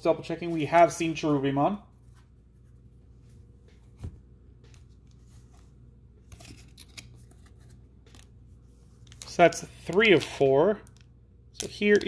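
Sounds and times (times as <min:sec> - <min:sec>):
cards handling noise: 0:03.6 - 0:12.0.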